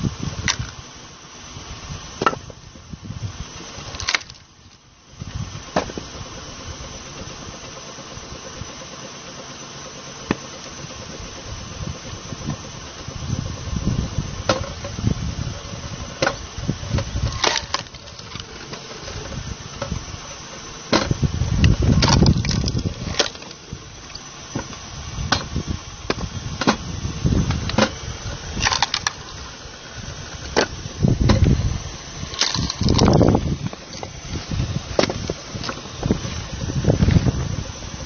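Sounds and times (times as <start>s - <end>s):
log splitter humming: 0.0s - 38.0s
logs splitting with rumbling: 2.2s - 7.6s, 10.3s - 38.0s
wood cracking and knocking: 21.9s - 25.5s, 32.3s - 34.2s.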